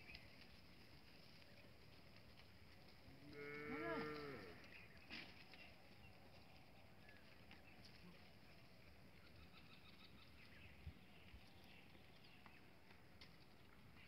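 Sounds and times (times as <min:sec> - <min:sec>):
cattle hooves pattering: 0:00.0 - 0:14.0
faint bird chirps: 0:09.1 - 0:12.6.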